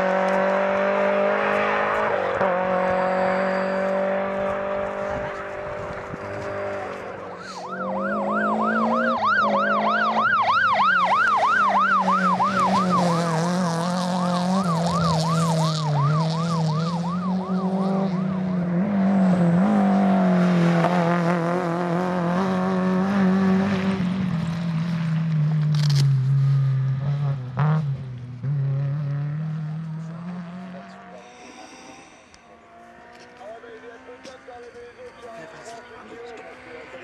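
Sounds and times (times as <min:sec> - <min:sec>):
siren yelping: 0:06.8 - 0:20.3.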